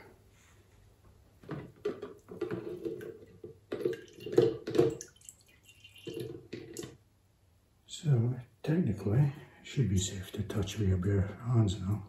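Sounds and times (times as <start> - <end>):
liquid dripping from basket: 3.9 - 7.0.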